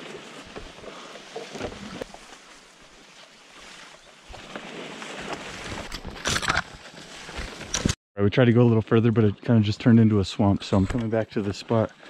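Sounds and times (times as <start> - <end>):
leaves rustling and swishing: 0.0 - 7.9.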